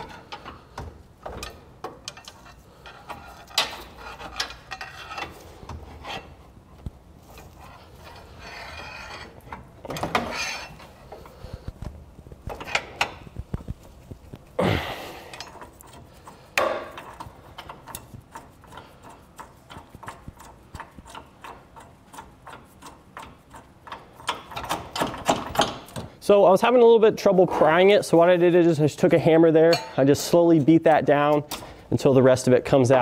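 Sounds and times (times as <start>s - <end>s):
metal scraping: 0.0s - 11.6s.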